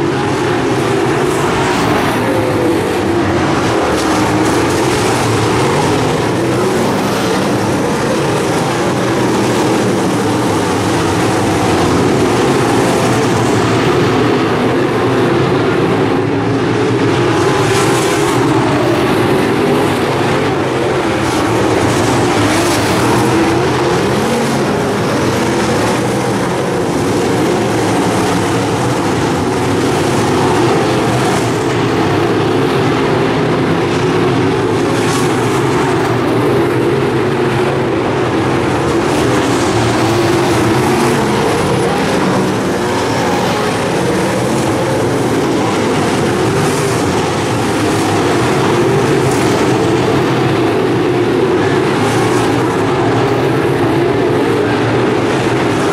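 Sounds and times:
race car engines droning: 0.0s - 55.9s.

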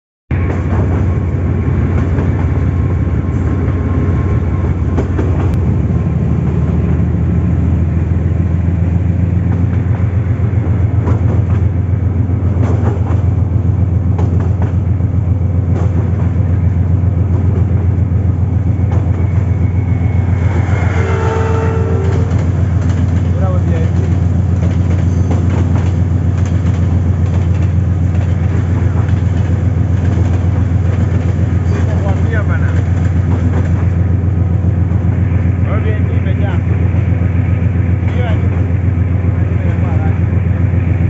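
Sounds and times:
train wheels rumbling on track: 0.3s - 41.0s
passing train horn tone: 18.7s - 23.4s.

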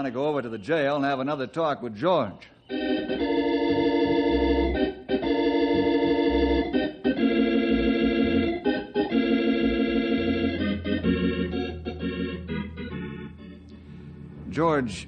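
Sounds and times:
organ chords: 2.5s - 15.0s
low bass note: 9.6s - 14.9s.

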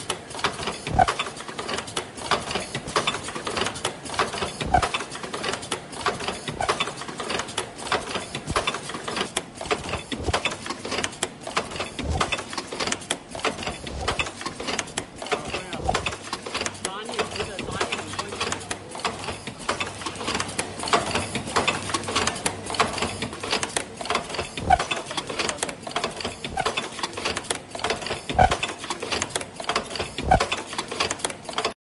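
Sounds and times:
machine clattering: 0.0s - 31.8s
heavy machine thump: 0.8s - 1.2s, 8.2s - 8.8s, 9.7s - 10.6s, 11.6s - 12.5s, 13.4s - 14.7s, 15.7s - 16.6s, 27.9s - 28.7s.

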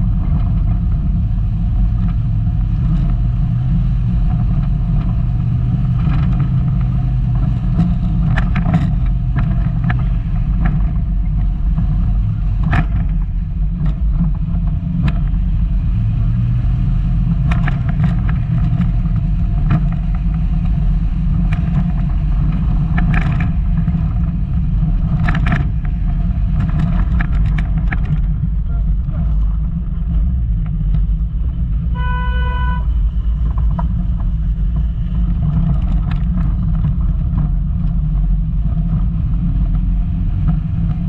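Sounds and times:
car engine and road rumble: 0.0s - 41.0s
car rattling over rough ground: 0.0s - 41.0s.

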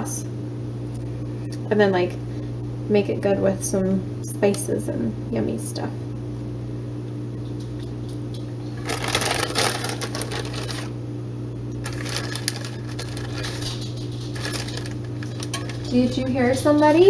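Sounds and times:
steady low hum: 0.0s - 17.0s
plastic bag crinkling: 8.6s - 11.0s, 11.8s - 17.0s.

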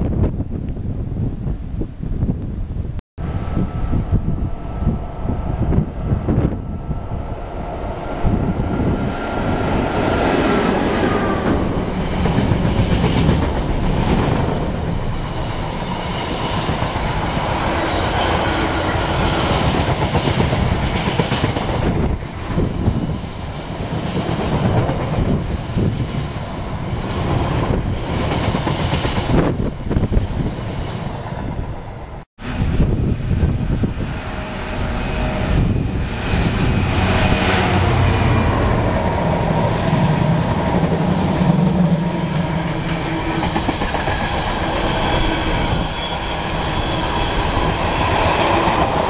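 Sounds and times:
high train whine: 0.0s - 49.0s
freight train wheels clickety-clack: 8.4s - 31.7s, 36.0s - 49.0s.

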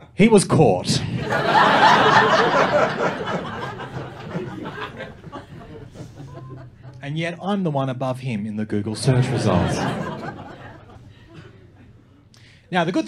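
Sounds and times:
audience laughing: 1.0s - 7.0s, 9.0s - 12.1s.

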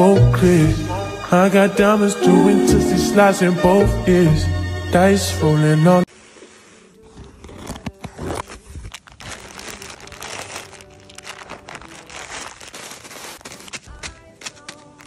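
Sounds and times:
scissors cutting plastic: 7.1s - 15.0s
plastic bags crinkling: 7.2s - 15.0s.

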